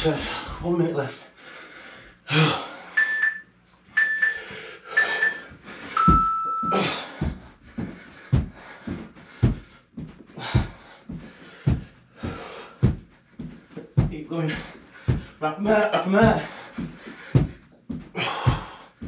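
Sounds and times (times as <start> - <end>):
man panting: 0.0 - 3.0, 4.2 - 19.0
timer beeps: 3.0 - 7.1
heavy exercise thuds: 4.5 - 19.0.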